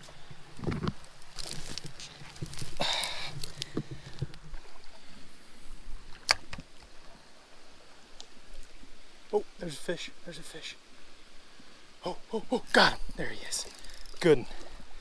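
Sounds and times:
dry grass and brush rustling: 0:00.0 - 0:07.0
twigs snapping: 0:00.8 - 0:04.4.

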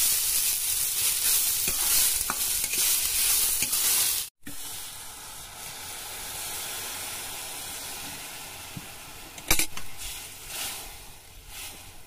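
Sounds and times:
water hissing in a hot wok: 0:00.0 - 0:12.0.

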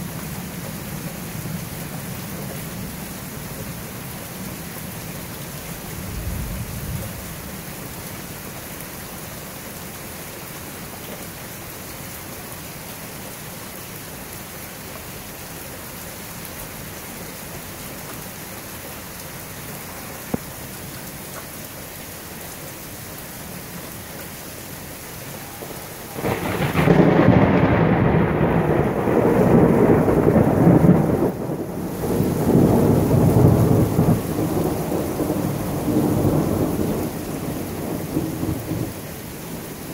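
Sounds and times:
steady rain falling: 0:00.0 - 0:39.9
thunder rolling: 0:25.6 - 0:38.9.

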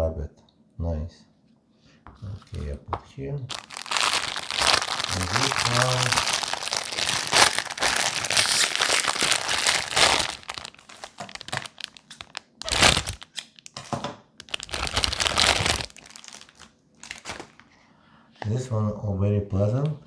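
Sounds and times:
plastic bag crinkling: 0:03.5 - 0:13.8, 0:14.4 - 0:17.6.

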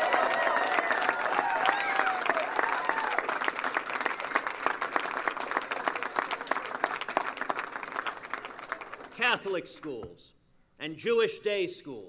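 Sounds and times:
crowd applauding: 0:00.0 - 0:09.2.

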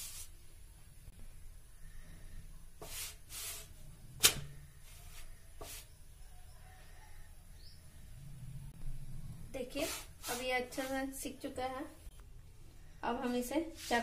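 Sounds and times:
fingers brushing dough: 0:02.8 - 0:03.8, 0:04.9 - 0:06.0, 0:09.6 - 0:11.3.

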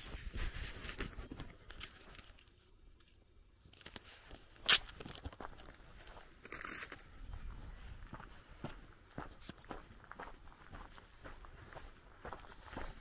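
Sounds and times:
footsteps on gravel: 0:04.7 - 0:13.0.

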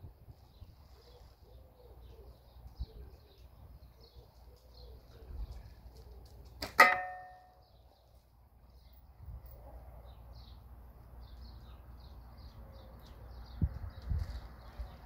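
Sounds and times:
steel ball striking metal: 0:06.8 - 0:07.5.

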